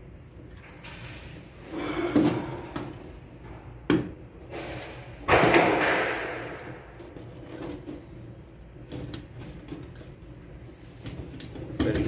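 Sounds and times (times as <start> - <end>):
wires scraping and rattling: 4.4 - 12.0.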